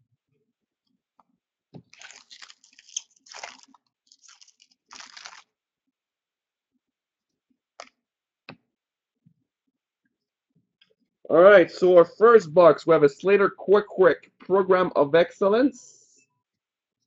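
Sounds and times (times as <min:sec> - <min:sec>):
wrappers tearing and crinkling: 0:01.9 - 0:05.5.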